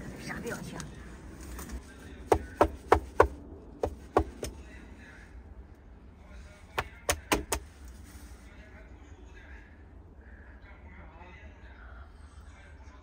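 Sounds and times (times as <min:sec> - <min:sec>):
knocking on a window pane: 0:02.3 - 0:04.6, 0:06.8 - 0:07.7.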